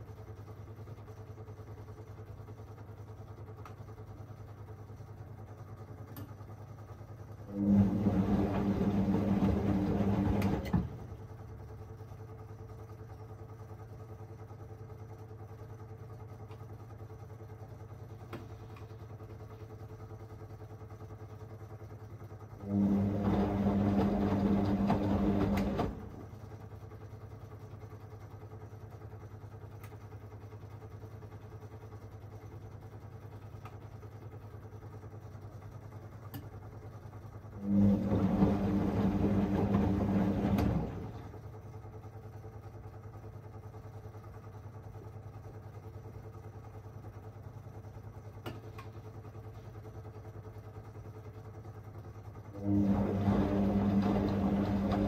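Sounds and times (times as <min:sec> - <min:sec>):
washing machine drum turning: 0:07.5 - 0:11.2, 0:22.7 - 0:26.3, 0:37.6 - 0:41.3, 0:52.6 - 0:55.0.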